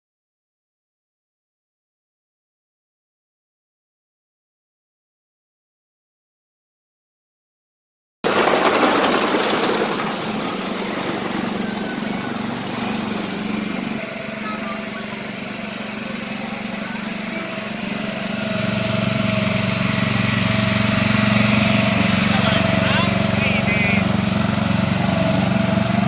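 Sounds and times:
small engine humming: 8.3 - 26.0.

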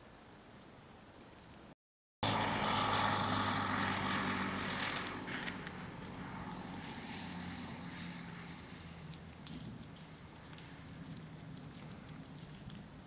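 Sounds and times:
engine drone with hiss: 2.2 - 12.0.

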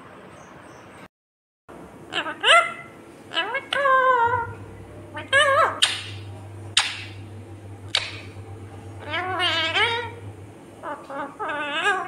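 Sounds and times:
parrot sharp calls: 2.1 - 4.5, 5.1 - 6.2, 6.8 - 7.2, 7.9 - 8.4, 9.0 - 10.2
parrot warbling calls: 2.1 - 7.2, 7.9 - 8.4, 9.0 - 10.2, 10.8 - 12.0.

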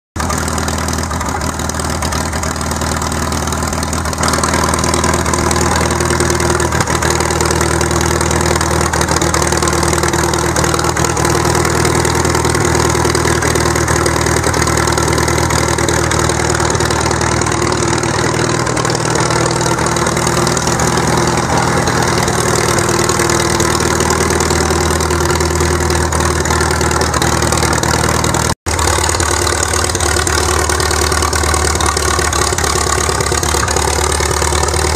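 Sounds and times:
tractor engine running: 0.2 - 34.9.

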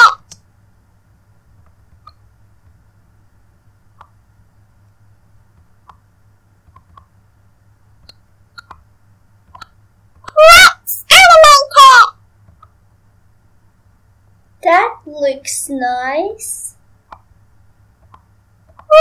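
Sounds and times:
computer mouse clicks: 5.6 - 6.0, 6.7 - 7.1, 8.0 - 8.8, 18.0 - 18.9.

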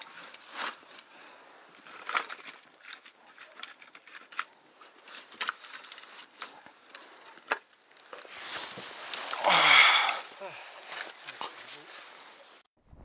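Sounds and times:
rustling hiss: 8.1 - 12.6.

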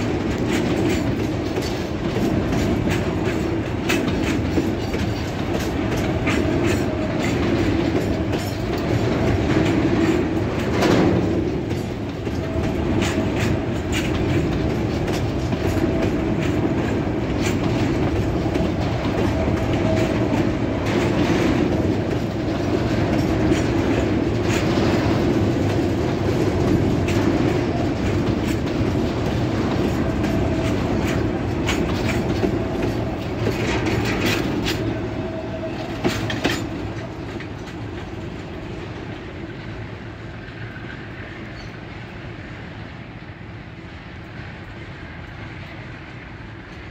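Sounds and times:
wheels clacking over rail joints: 0.0 - 43.4
train wheels rumbling on rail: 0.0 - 46.9.

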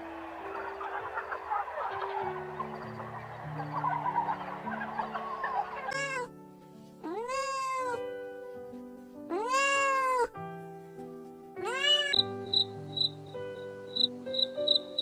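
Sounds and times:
background music: 0.0 - 15.0
cat meowing: 5.9 - 6.3, 7.0 - 8.1, 9.3 - 10.4, 11.6 - 12.3.

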